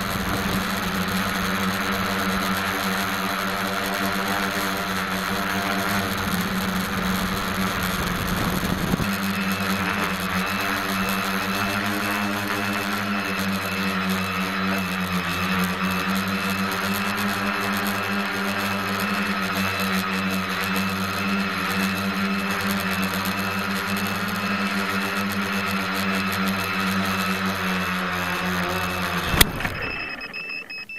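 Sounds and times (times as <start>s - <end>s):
quadcopter motors and propellers humming: 0.0s - 30.9s.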